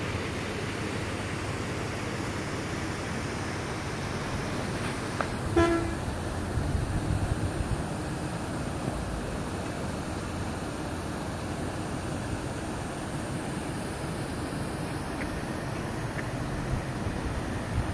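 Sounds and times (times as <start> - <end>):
vehicle horn toot: 5.5 - 6.0.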